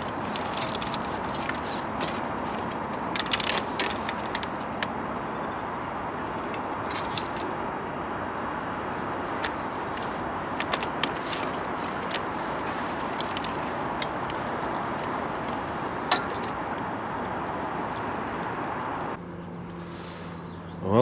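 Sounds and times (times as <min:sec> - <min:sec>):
sharp clicks and crackles: 0:00.0 - 0:05.0, 0:09.4 - 0:17.2
outdoor background noise: 0:00.0 - 0:21.0.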